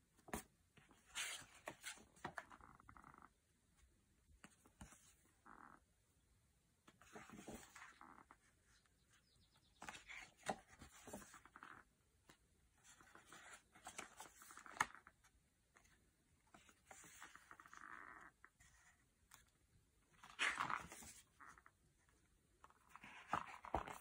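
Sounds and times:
paper pages rustling: 7.0 - 8.0, 9.8 - 11.7, 22.6 - 24.0.

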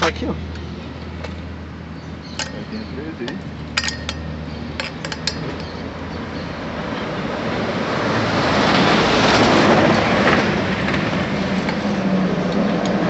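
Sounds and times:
passing road vehicle rush: 0.0 - 13.0
wrench clicking on bolt: 3.8 - 5.8.

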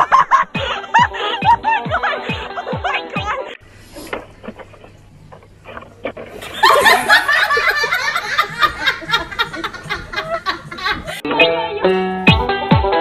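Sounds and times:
loud laughter: 0.0 - 3.1, 6.4 - 11.2.

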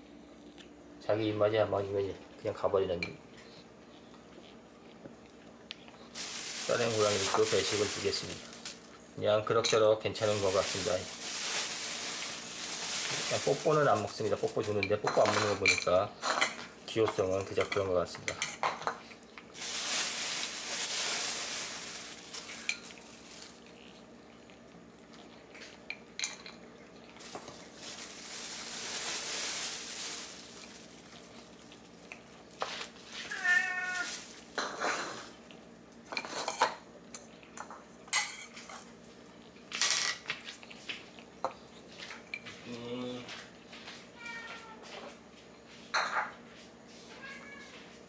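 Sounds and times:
rustling hiss: 6.1 - 9.0, 10.2 - 14.8, 19.5 - 23.7, 27.2 - 35.4
cat crunching kibble: 21.3 - 36.0
cat meowing: 33.2 - 34.2, 44.2 - 44.9, 47.1 - 47.8.

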